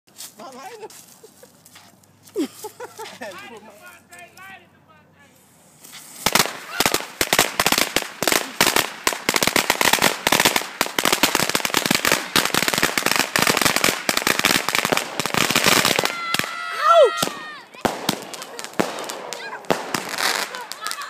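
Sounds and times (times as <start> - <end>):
firecrackers banging: 5.3 - 21.0.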